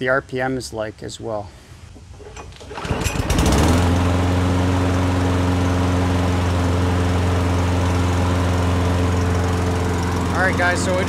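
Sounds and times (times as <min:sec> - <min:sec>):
lawn mower engine running: 0:02.1 - 0:11.0.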